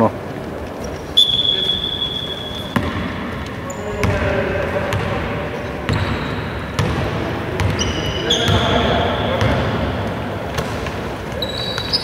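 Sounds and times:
shoe squeaks: 0.8s - 3.0s, 3.6s - 4.2s, 5.9s - 6.8s, 7.6s - 9.6s, 11.3s - 12.0s
basketball bouncing on hardwood: 2.7s - 3.1s, 6.8s - 7.8s.

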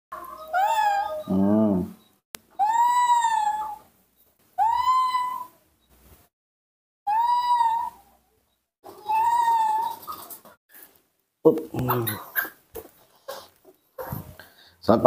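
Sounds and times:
baby monkey screaming: 2.6s - 3.9s, 4.6s - 5.6s, 7.1s - 8.1s, 8.9s - 10.4s.

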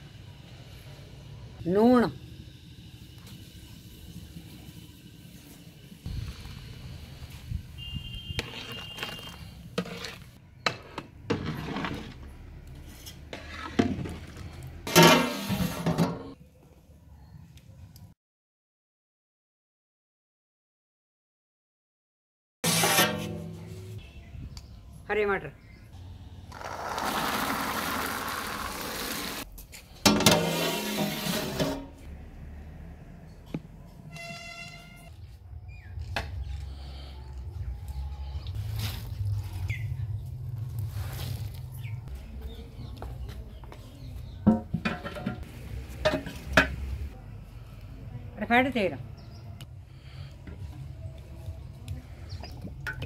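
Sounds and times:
metal spoon stirring in metal pot: 8.3s - 15.9s
peas pouring into pot: 26.5s - 29.4s.

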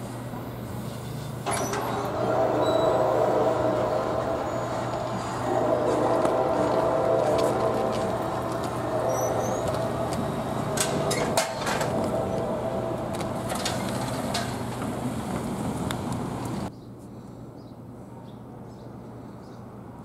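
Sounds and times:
engine drone: 0.0s - 16.7s
tyres thumping over rails: 1.4s - 16.6s.

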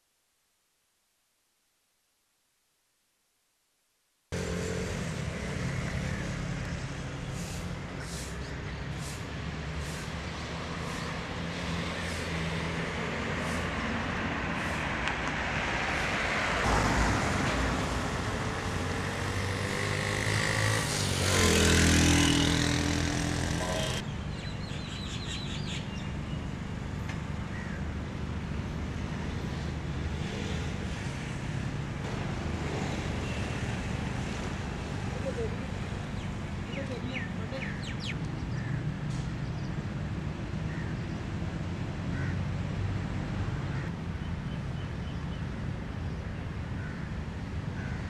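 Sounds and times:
motorcycle driving past: 4.3s - 7.0s, 16.7s - 24.0s
street traffic: 4.3s - 48.0s.

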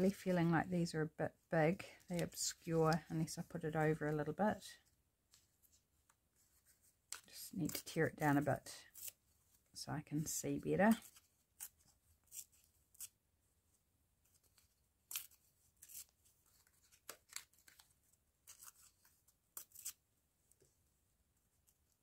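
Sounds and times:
paper rustling and crinkling: 14.2s - 20.0s.

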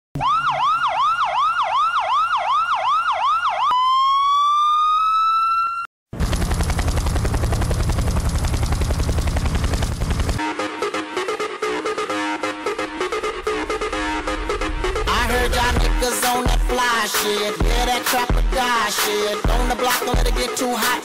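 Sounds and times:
police siren: 0.2s - 7.7s
pulsing bass-heavy buzz: 6.2s - 10.4s, 12.5s - 16.8s.

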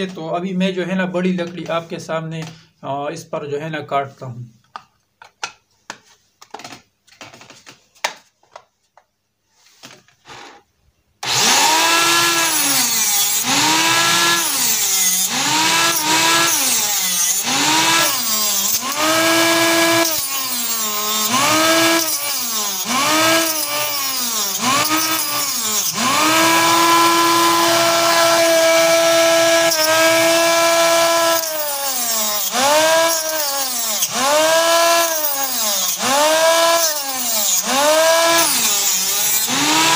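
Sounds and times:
small table saw cutting wood: 10.2s - 39.9s.

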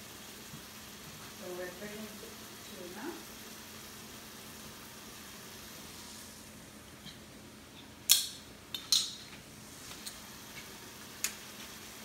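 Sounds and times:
sauce simmering in a pan: 0.0s - 6.5s, 10.2s - 12.0s.

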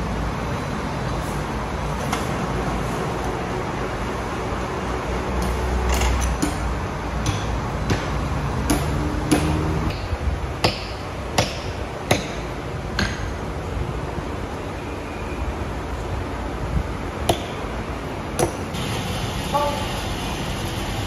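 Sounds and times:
sharp knocks: 6.4s - 13.4s
sawmill machinery humming: 18.7s - 21.0s.

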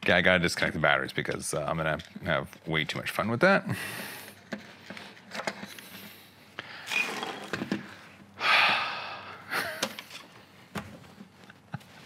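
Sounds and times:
man's breathy exhales: 8.4s - 9.6s.

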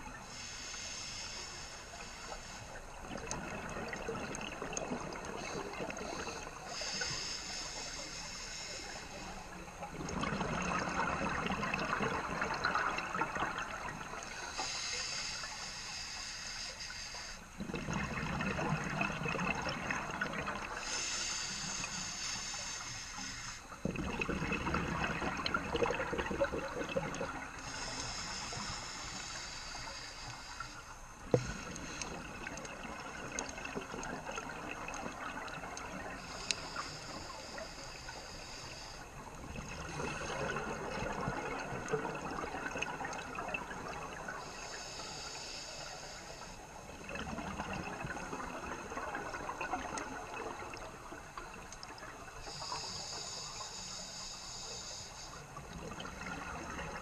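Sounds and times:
regulator inhale hiss: 0.1s - 3.3s, 5.2s - 9.8s, 13.6s - 17.6s, 20.4s - 23.8s, 27.3s - 47.0s, 47.8s - 57.0s
diver exhaling bubbles underwater: 9.9s - 14.2s, 17.6s - 20.8s, 23.8s - 27.9s, 39.4s - 44.4s.

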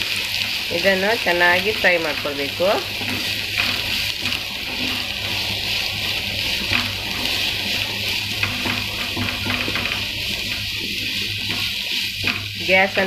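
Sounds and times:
onions sizzling in oil: 0.0s - 13.0s
spatula tapping and scraping pan: 1.6s - 13.0s.

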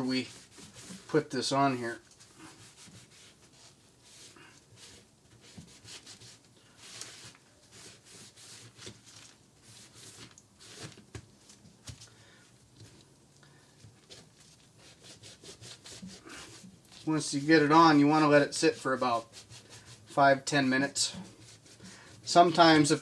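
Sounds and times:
sponge scrubbing metal rails: 0.0s - 10.8s, 14.2s - 23.0s.

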